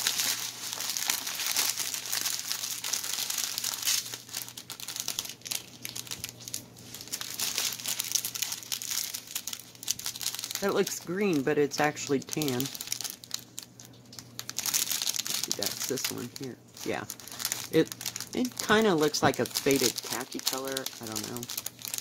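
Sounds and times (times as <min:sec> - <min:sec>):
plastic bags crinkling: 0:00.0 - 0:22.0.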